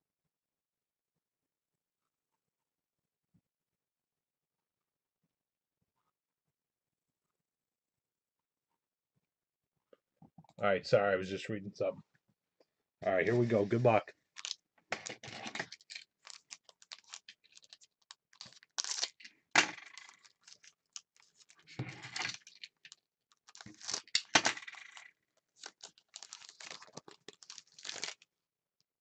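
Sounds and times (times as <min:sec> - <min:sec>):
foil wrapper crinkling: 0:14.3 - 0:28.2
wrapper tearing: 0:14.4 - 0:28.2.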